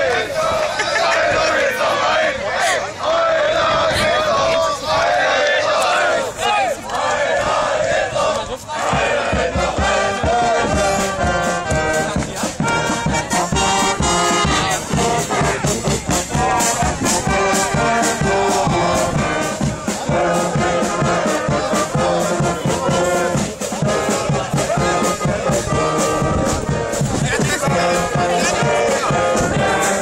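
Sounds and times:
brass band playing: 9.0s - 30.0s.

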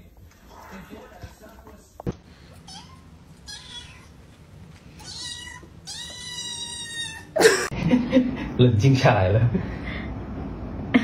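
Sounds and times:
kitten meowing: 2.7s - 4.2s, 5.0s - 7.4s.

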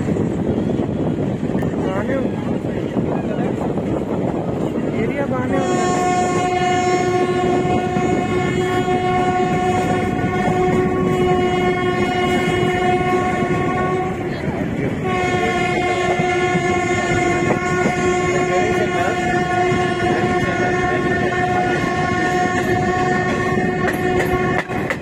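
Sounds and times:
train running on track: 0.0s - 25.0s
train horn blast: 5.4s - 25.0s.

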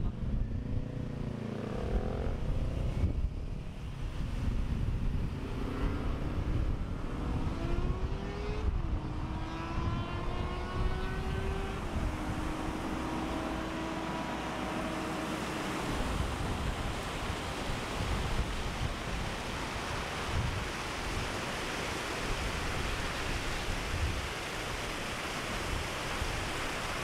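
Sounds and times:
vehicle engine accelerating: 0.0s - 3.2s, 5.3s - 17.2s
wind rumble: 0.0s - 27.0s.

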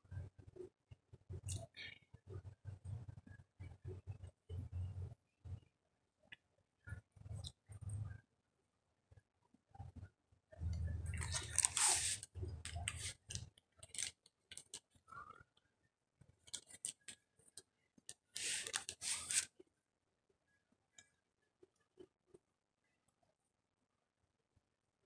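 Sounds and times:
rustling and crinkling: 10.6s - 15.0s, 16.3s - 19.6s
small clicks and crunches: 10.8s - 14.9s, 16.4s - 19.5s.

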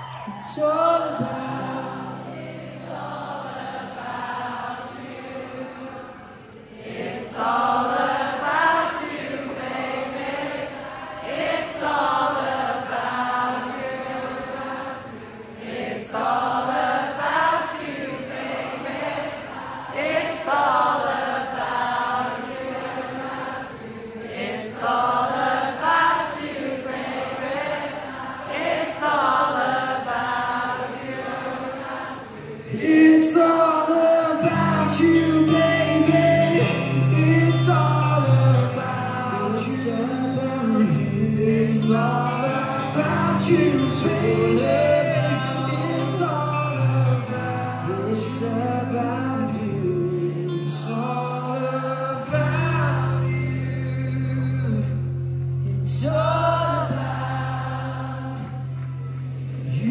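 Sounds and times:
crowd singing along: 0.0s - 59.9s
band guitars and bass: 34.4s - 59.9s.

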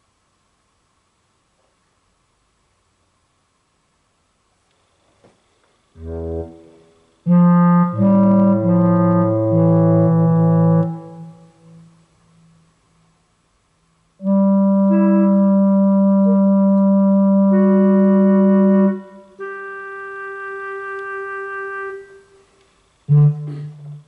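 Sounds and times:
loud plucked low guitar note: 23.2s - 24.0s.

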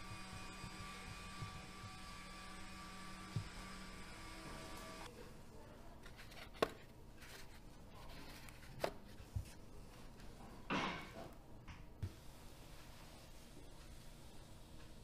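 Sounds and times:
brushing rustle: 12.1s - 14.4s.

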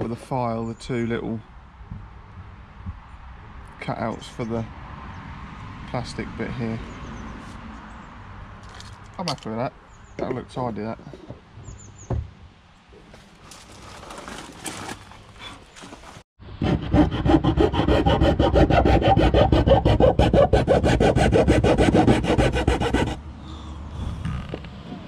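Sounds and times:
hand file rasping: 16.6s - 23.2s.

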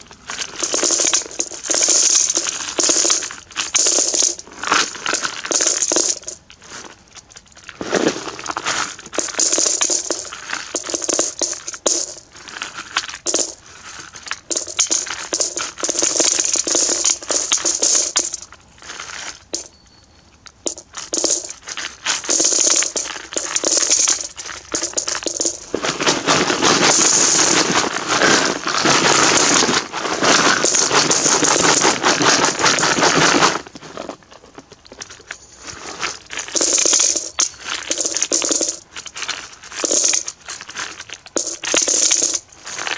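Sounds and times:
coins pouring into metal bucket: 0.6s - 4.4s, 5.0s - 6.4s, 9.1s - 12.2s, 13.0s - 13.6s, 14.3s - 18.4s, 19.5s - 19.7s, 20.6s - 25.7s, 26.8s - 29.7s, 30.4s - 33.2s, 36.3s - 42.9s.

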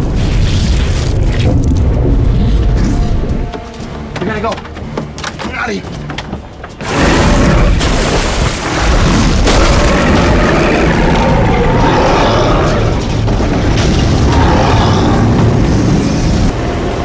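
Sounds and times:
faint dramatic score: 0.0s - 17.0s
deep rumbling and booms: 6.5s - 16.6s.

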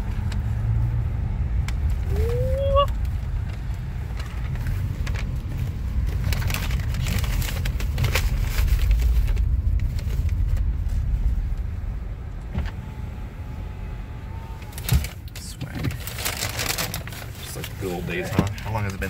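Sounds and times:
car rumbling from inside: 0.0s - 19.0s
paper bag rustling: 14.7s - 19.0s.

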